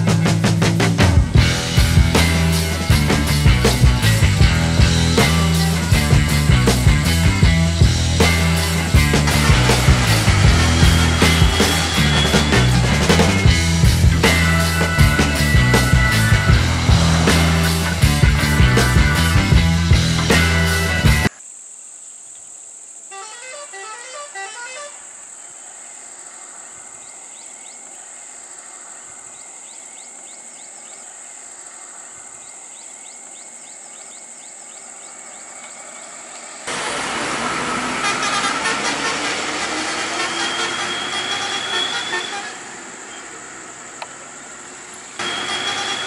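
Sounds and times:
bus engine revving: 0:00.0 - 0:21.3, 0:35.9 - 0:46.0
music: 0:00.0 - 0:21.3, 0:23.2 - 0:25.0, 0:45.2 - 0:46.0
high-pitched drone: 0:07.0 - 0:21.0, 0:45.1 - 0:46.0
vehicle horn rising notes: 0:08.0 - 0:19.5, 0:23.1 - 0:25.2, 0:36.7 - 0:43.6, 0:45.2 - 0:46.0.

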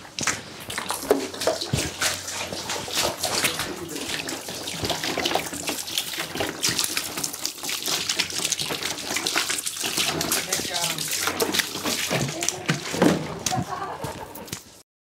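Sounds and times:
water sloshing and splashing: 0:00.0 - 0:14.8
plastic can knocks: 0:12.1 - 0:13.7.

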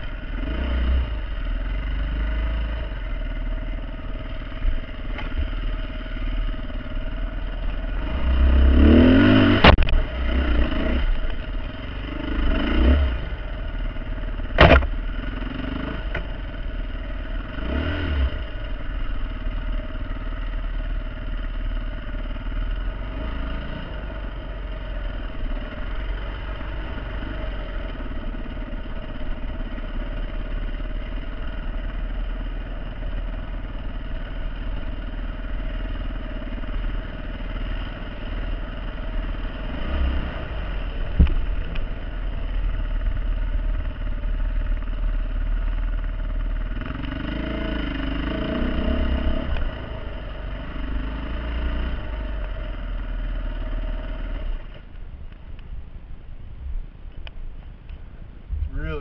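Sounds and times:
dirt bike engine revving: 0:01.9 - 0:20.4, 0:46.7 - 0:54.5
sharp knock: 0:14.6 - 0:15.0.

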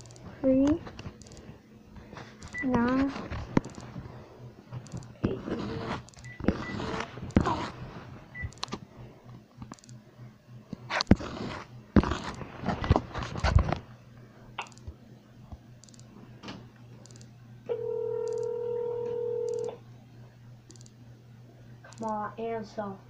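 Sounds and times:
phone being handled: 0:00.0 - 0:04.1
phone ringback tone: 0:17.7 - 0:19.8.

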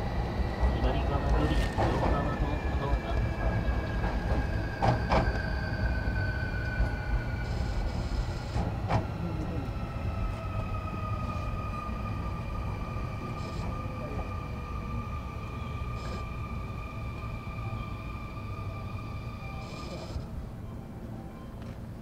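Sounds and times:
train running rumble: 0:00.0 - 0:20.6
electric train motor whine: 0:04.8 - 0:08.8, 0:12.6 - 0:20.3.

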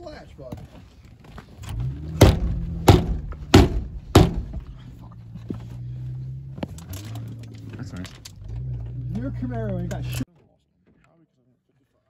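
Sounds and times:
car engine idling: 0:01.7 - 0:10.2
boot knocking on car door sill: 0:02.2 - 0:04.7.

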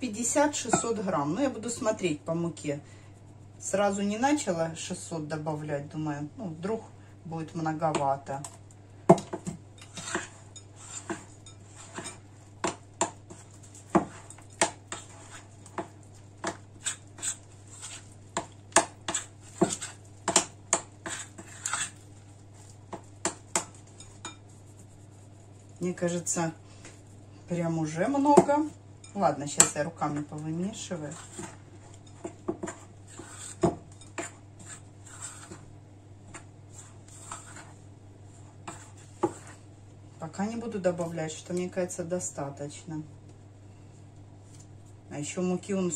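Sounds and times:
dough kneaded by hand: 0:09.4 - 0:27.1.

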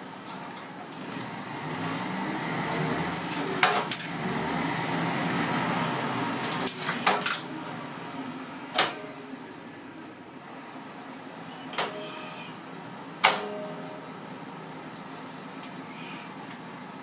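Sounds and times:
railcar cab mechanical hum: 0:00.0 - 0:17.0
metallic clinks and rattles: 0:03.7 - 0:04.2, 0:06.4 - 0:07.5.

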